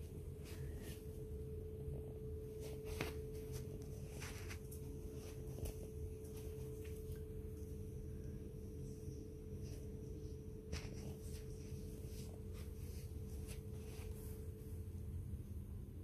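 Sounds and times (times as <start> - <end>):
faint steady hum: 0.0 - 16.0
soft clicks and rustles: 2.3 - 7.9.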